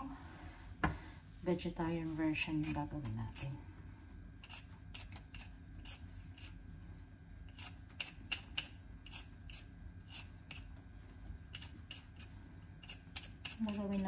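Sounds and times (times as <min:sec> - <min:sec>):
peeler scraping potato skin: 0:02.5 - 0:03.6, 0:04.4 - 0:06.6, 0:07.4 - 0:10.8, 0:11.4 - 0:14.0.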